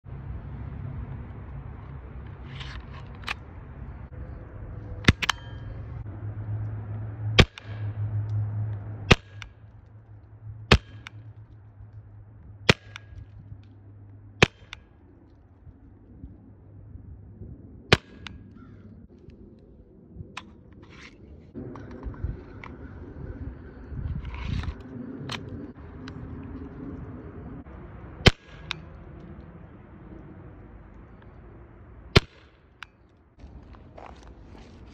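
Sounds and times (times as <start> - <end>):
air pistol shots: 10.7 - 11.2, 12.7 - 13.2.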